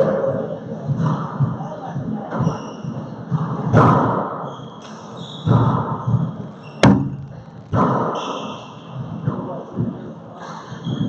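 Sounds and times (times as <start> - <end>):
hand hitting ball: 6.8 - 8.0.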